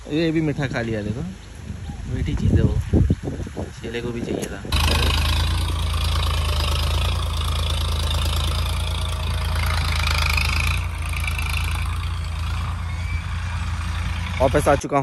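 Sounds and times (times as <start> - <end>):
tractor diesel engine running: 4.7 - 15.0.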